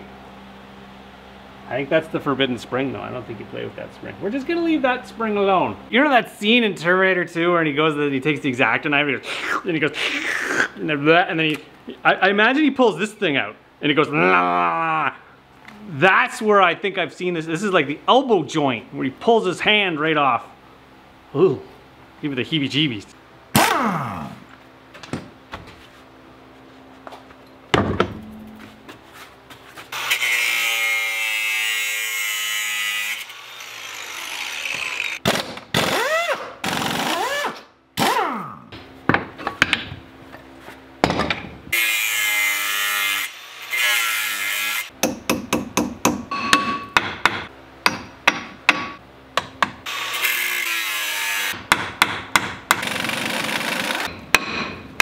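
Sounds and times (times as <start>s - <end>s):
air impact wrench running: 52.8s - 54.2s.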